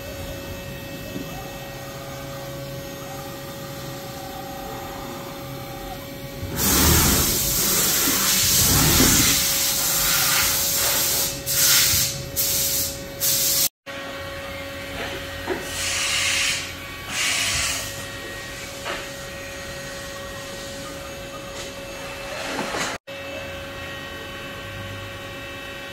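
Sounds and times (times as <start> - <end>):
steady machine hum: 0.0 - 13.3, 13.9 - 25.9
hissing bursts: 6.4 - 13.7.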